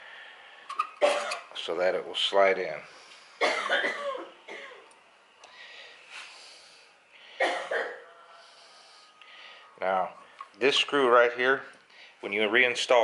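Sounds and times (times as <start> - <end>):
person coughing: 1.0 - 1.5, 3.4 - 4.8, 7.4 - 8.1.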